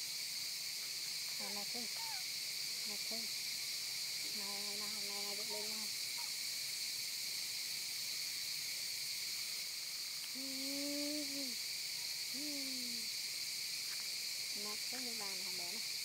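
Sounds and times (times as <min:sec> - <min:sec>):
insect chorus drone: 0:00.0 - 0:16.0
short low calls: 0:10.3 - 0:11.6, 0:12.3 - 0:13.1.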